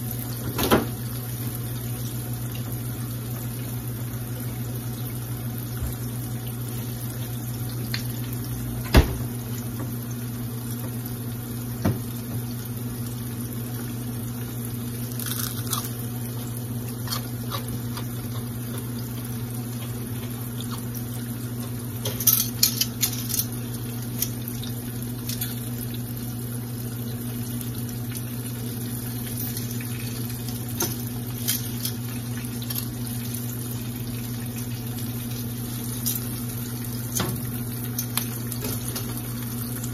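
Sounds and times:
crispy onion ring crunching: 15.0 - 21.0
oil sizzling in skillet: 15.9 - 39.9.

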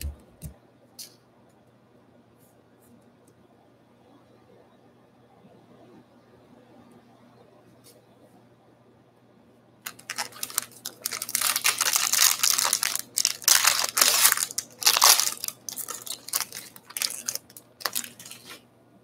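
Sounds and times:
plastic wrapper tearing and crinkling: 9.9 - 18.6.

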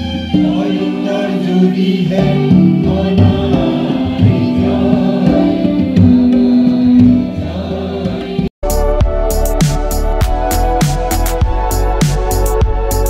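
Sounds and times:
mixed choir singing: 0.0 - 8.5.

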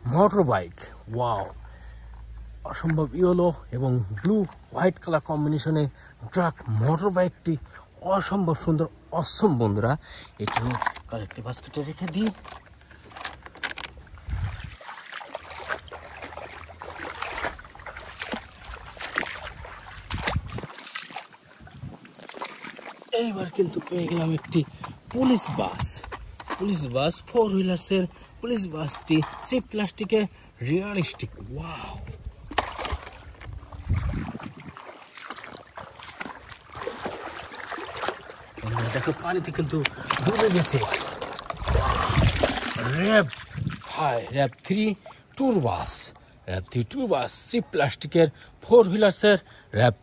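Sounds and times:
rustling of wet leafy vegetation: 0.0 - 48.0
small crackles and rustles: 10.4 - 26.9
wind rumble on microphone: 14.1 - 14.8, 18.6 - 20.7, 21.5 - 22.2, 31.4 - 34.8, 41.4 - 42.8, 43.4 - 43.9.

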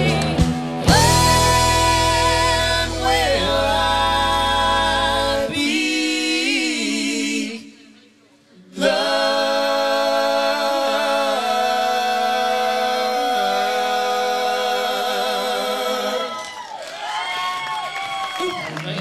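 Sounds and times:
live band playing: 0.0 - 5.6
singers in harmony: 0.0 - 8.0, 8.6 - 16.7.

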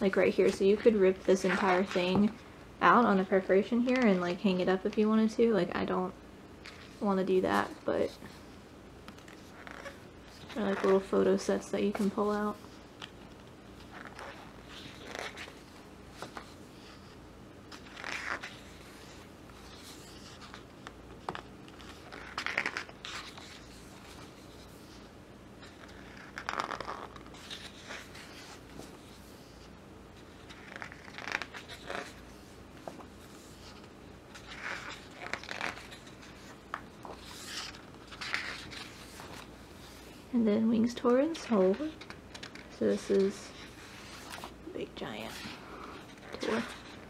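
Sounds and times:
book pages turning: 9.0 - 40.2, 41.1 - 47.0.

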